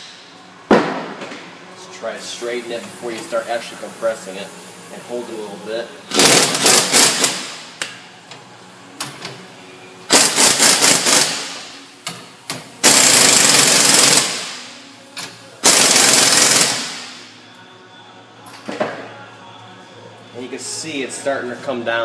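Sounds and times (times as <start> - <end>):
pneumatic impact wrench hammering: 6.1 - 7.6, 10.1 - 14.6, 15.6 - 17.2.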